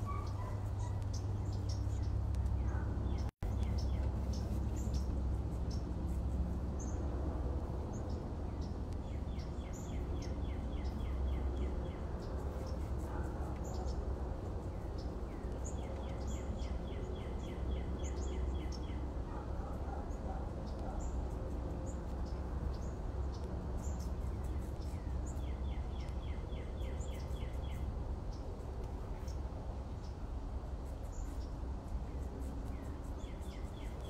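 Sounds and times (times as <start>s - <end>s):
birds chirping: 0.0s - 5.9s
steady low rumble: 0.0s - 34.0s.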